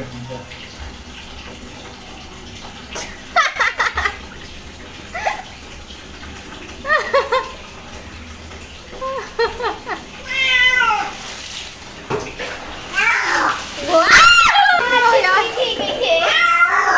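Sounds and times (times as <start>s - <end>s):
wet rubbing of soapy fur: 1.6s - 16.9s
cat mewing: 10.2s - 11.2s, 12.9s - 14.6s, 16.2s - 16.9s.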